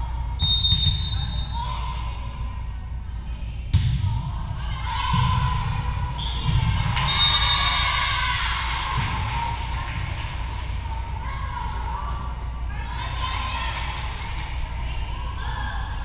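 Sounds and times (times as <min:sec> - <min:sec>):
shouts and cheers: 0:06.7 - 0:09.8.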